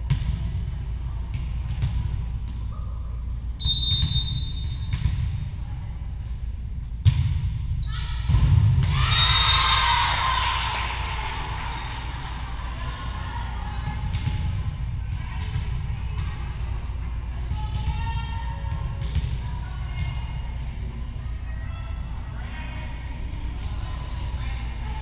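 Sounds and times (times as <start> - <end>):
referee's whistle: 3.6 - 4.9, 9.1 - 9.8
crowd cheering and shouting: 8.9 - 13.8.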